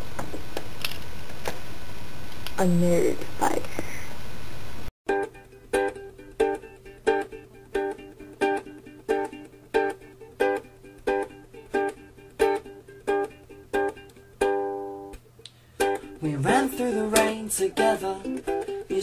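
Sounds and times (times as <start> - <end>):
acoustic string instrument strumming: 5.1 - 19.0.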